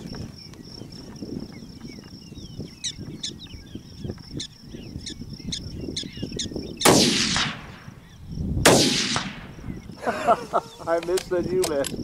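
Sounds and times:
wind on microphone: 0.0 - 12.0
sharp chirping calls: 1.5 - 7.1.

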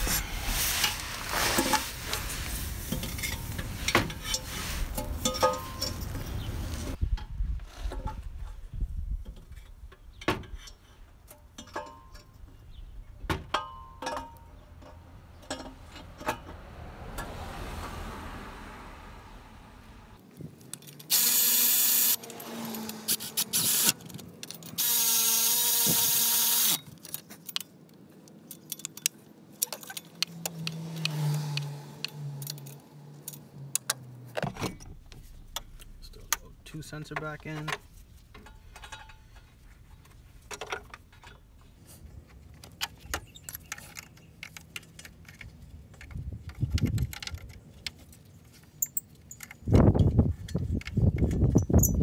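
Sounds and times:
metal tools clinking: 2.9 - 6.5, 37.1 - 39.8, 48.4 - 52.0
cordless power tool whine: 21.1 - 24.0, 24.8 - 26.8.

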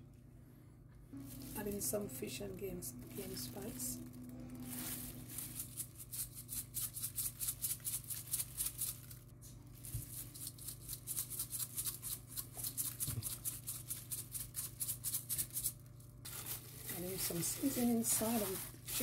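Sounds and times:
spice rattling in plastic shaker: 4.6 - 9.2, 9.8 - 19.0.

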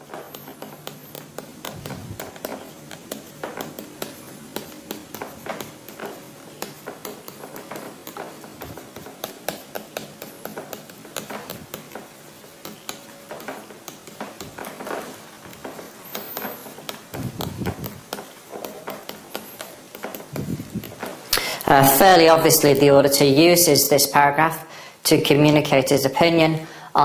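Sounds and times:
pen writing: 0.1 - 21.2.

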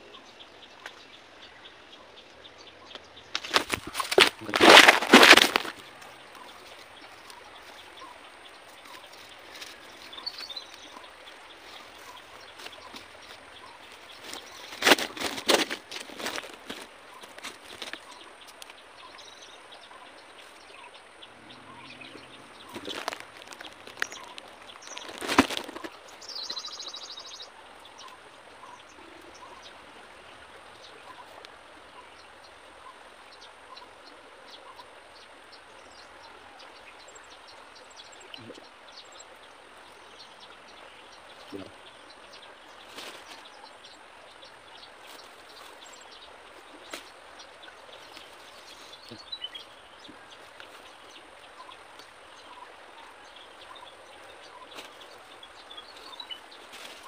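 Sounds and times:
birds chirping: 0.0 - 57.0
hands tying rope: 3.3 - 6.1, 14.0 - 18.8, 22.7 - 25.9.

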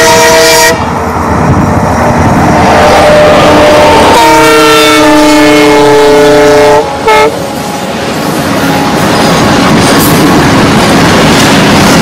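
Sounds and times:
locomotive horn: 0.0 - 0.9, 2.6 - 7.8
train wheels rumbling on rails: 0.0 - 12.0.

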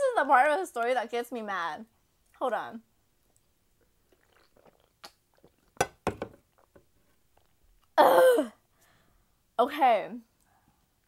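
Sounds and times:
sharp knocks: 5.8 - 6.4.

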